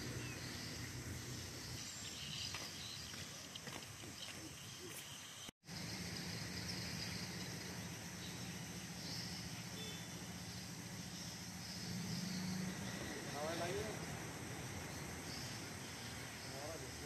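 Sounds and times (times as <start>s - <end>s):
insects hissing: 0.0s - 17.0s
steady low hum: 0.0s - 17.0s
faint chirps: 0.2s - 14.0s.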